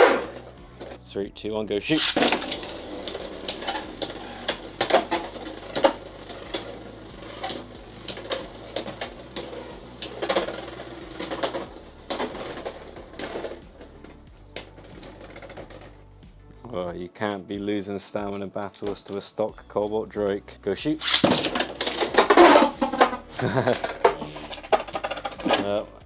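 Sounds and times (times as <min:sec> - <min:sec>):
spinning tops whirring: 0:00.0 - 0:01.0, 0:01.9 - 0:16.0, 0:21.0 - 0:25.7
spinning tops clacking: 0:01.9 - 0:15.9, 0:21.0 - 0:25.7.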